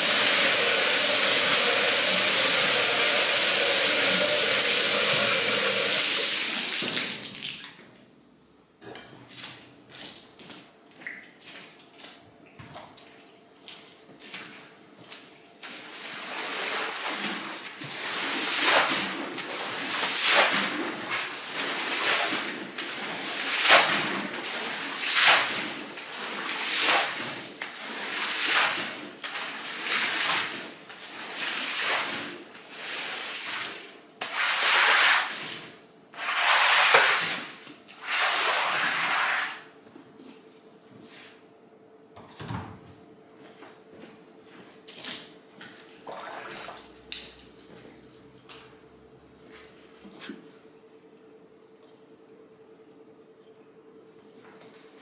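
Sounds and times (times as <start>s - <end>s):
water swished across carpet: 13.6s - 39.6s.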